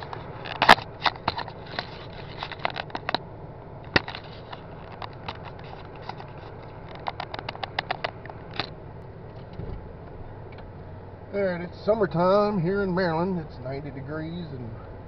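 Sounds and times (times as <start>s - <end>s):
steady low hum: 0.0s - 15.0s
fingers clicking on camera body: 4.0s - 8.7s.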